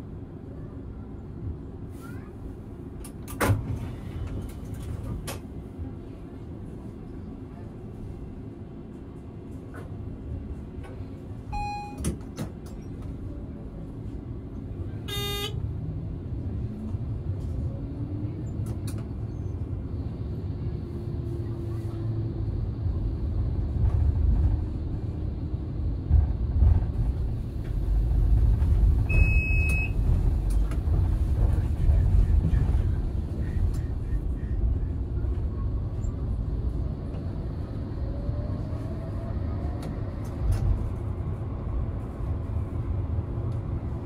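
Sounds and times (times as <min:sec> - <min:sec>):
tram rumbling over track: 0:00.0 - 0:44.0
short high beep: 0:11.6 - 0:12.0, 0:15.1 - 0:15.6.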